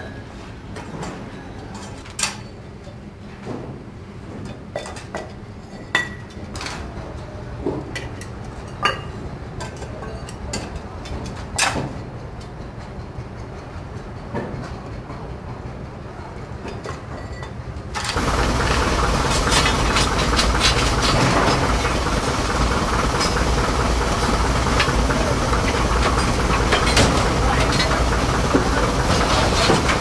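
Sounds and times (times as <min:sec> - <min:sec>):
locomotive fire rumble and hiss: 0:17.6 - 0:30.0
fire iron scraping metal grate: 0:18.0 - 0:30.0.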